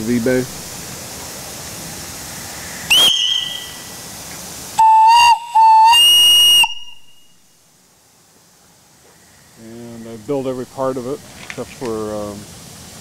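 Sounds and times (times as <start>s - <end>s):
steam hissing: 0.0s - 13.0s
steam whistle blasts: 2.9s - 4.0s, 4.8s - 7.5s.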